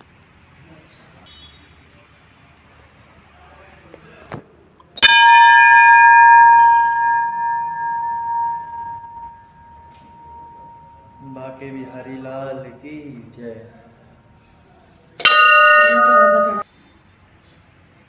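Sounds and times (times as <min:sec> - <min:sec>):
brass bell ringing: 0:05.0 - 0:12.7, 0:15.2 - 0:16.7.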